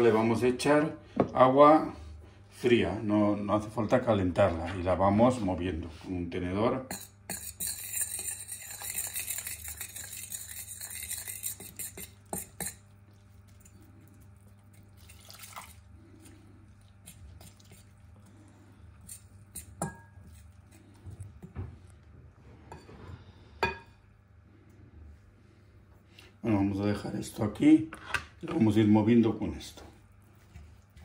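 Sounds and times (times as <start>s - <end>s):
fork mixing batter: 6.7s - 22.0s
fork clinking against bowl: 6.9s - 12.9s, 19.0s - 20.5s
water poured into a bowl: 13.2s - 16.0s.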